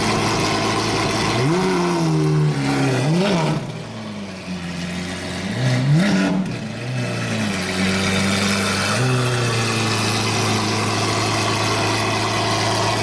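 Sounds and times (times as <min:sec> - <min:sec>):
sports car engine revving: 0:00.0 - 0:13.0.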